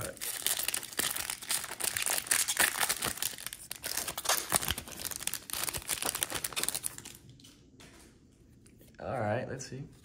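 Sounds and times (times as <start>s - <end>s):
card pack wrapper crinkling and tearing: 0.0s - 7.2s.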